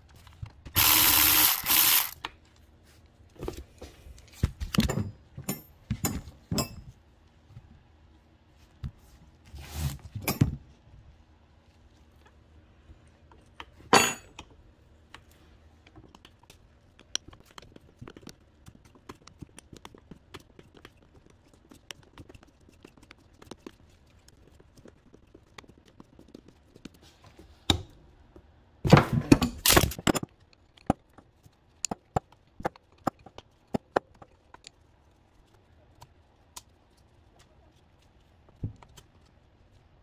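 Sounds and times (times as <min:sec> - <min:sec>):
wrench clicking on fittings: 0:00.8 - 0:02.2.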